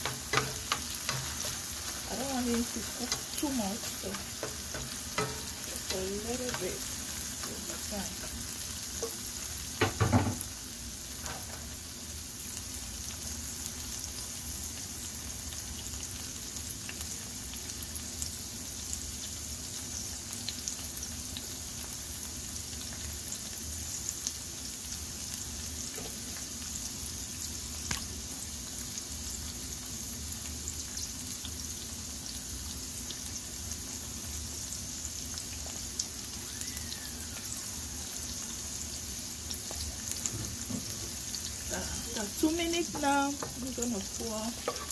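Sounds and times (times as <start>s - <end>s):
vegetables sizzling in oil: 0.0s - 44.9s
knocks against pan: 9.8s - 10.4s.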